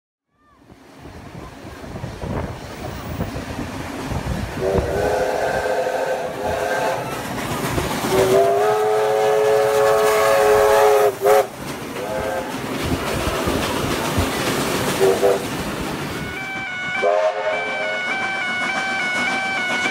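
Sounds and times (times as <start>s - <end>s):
steam locomotive running: 0.6s - 19.9s
wheels on rails: 0.8s - 16.8s
steam whistle chime blasts: 8.1s - 12.5s, 16.2s - 19.9s.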